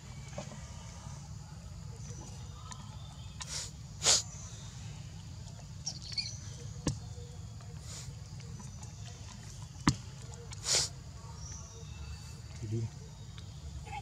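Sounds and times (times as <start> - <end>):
breathy puff: 10.6 - 10.9.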